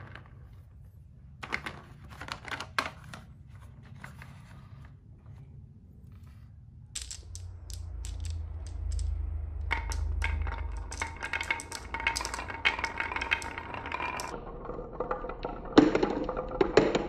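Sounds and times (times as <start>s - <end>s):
marbles clicking in a hand: 7.0s - 17.0s
marbles rolling down wooden slope: 7.0s - 17.0s.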